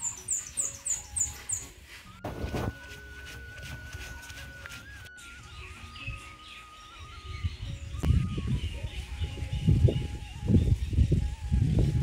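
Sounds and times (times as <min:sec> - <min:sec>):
birds chirping faintly: 0:00.0 - 0:02.2.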